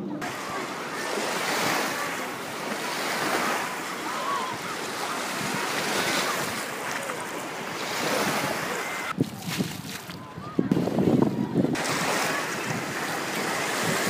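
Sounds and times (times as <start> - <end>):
distant voices: 0.0 - 14.0
small waves washing on sand: 0.2 - 14.0
wind on microphone: 2.9 - 14.0.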